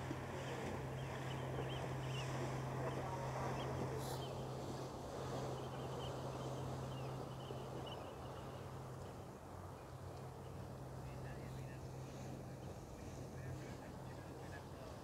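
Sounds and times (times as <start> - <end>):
ship engines droning: 0.0 - 15.0
wind and water rushing: 0.0 - 15.0.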